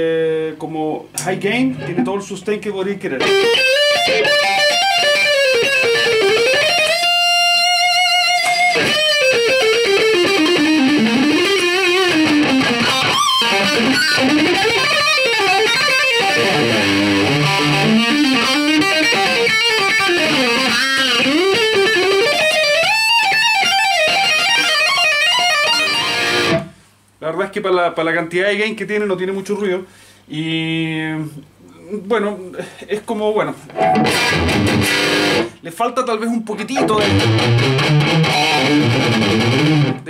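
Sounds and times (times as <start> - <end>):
distorted electric guitar lead: 3.2 - 26.8, 33.7 - 35.6, 36.7 - 40.0.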